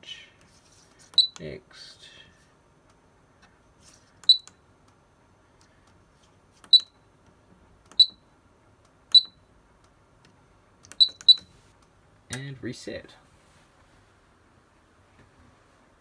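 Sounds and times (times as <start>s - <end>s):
keypad beeps: 1.2s - 1.4s, 4.2s - 4.6s, 6.7s - 7.0s, 7.9s - 8.2s, 9.1s - 9.4s, 10.9s - 11.5s.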